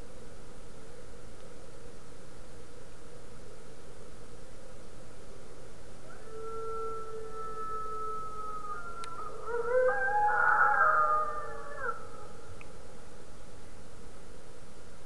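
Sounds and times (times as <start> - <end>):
wolves howling: 6.0 - 12.6.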